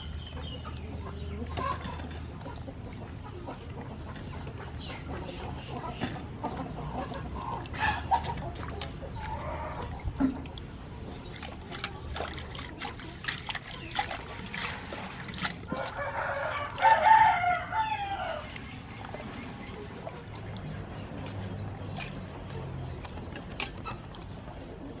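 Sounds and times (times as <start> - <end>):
water splashing in steel bowl: 0.0 - 17.3
rooster crowing: 15.7 - 18.4.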